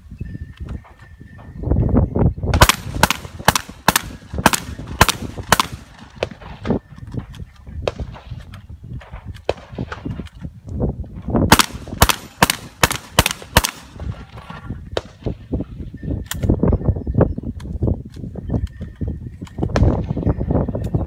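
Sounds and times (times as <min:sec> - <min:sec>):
fainter gunshots: 0:02.6 - 0:06.7, 0:11.5 - 0:14.1
rapid gunshots: 0:02.6 - 0:06.7, 0:11.5 - 0:14.2.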